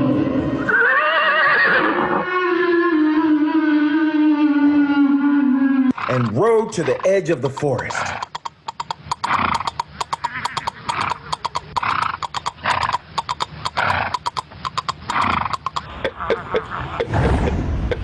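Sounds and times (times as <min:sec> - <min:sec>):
galloping horse hoofbeats: 0:06.1 - 0:16.4.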